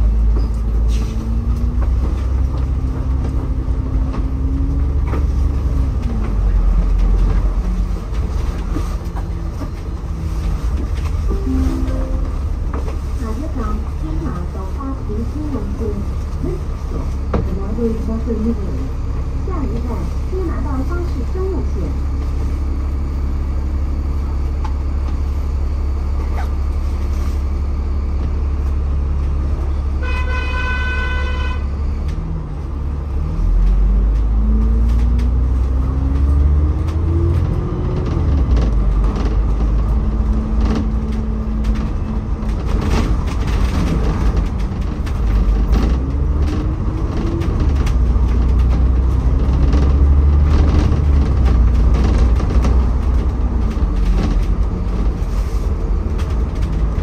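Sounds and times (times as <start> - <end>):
bus engine rumbling: 0.0 - 57.0
horn sounding: 30.0 - 31.7.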